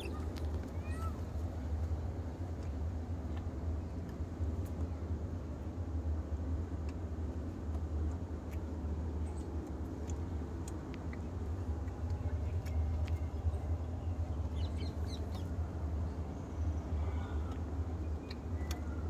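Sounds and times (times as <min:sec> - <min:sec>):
faint clicks: 0:07.6 - 0:13.9, 0:17.4 - 0:19.0.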